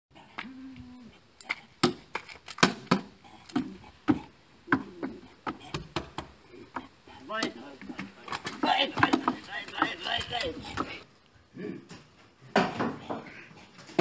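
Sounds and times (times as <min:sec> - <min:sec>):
cane tapping on steps and paving: 0:01.4 - 0:11.0.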